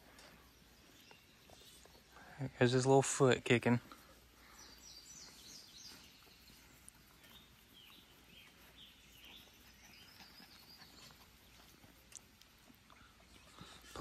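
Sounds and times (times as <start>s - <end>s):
faint bird chirps: 3.9s - 14.0s.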